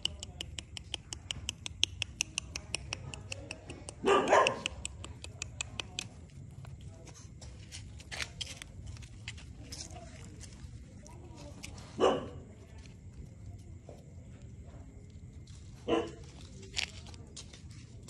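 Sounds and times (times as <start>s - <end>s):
dog barking: 4.0s - 4.9s, 12.0s - 12.5s, 15.8s - 16.3s.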